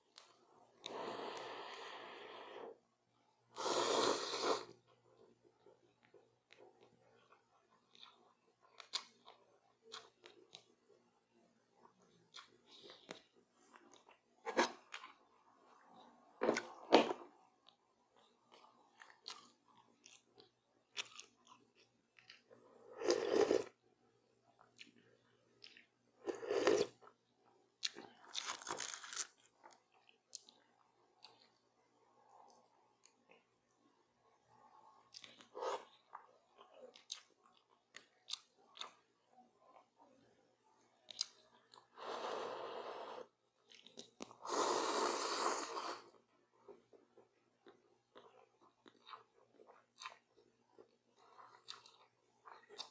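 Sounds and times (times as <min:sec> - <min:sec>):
hissy mouth sound: 0:03.6 - 0:04.7, 0:44.4 - 0:46.0
person slurping broth: 0:03.6 - 0:04.8, 0:22.9 - 0:23.7, 0:42.0 - 0:43.3, 0:44.4 - 0:46.1.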